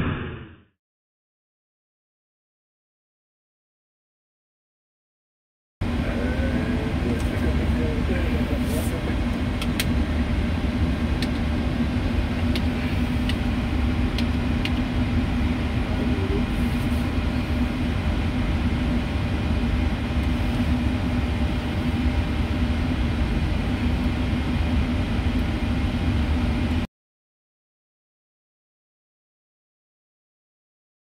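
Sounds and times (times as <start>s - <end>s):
cockpit hum: 5.8s - 26.9s.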